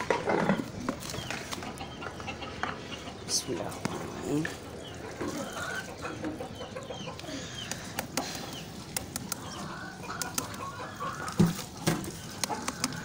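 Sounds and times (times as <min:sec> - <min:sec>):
chickens clucking: 0:00.0 - 0:13.0
sharp clicks: 0:07.6 - 0:10.6.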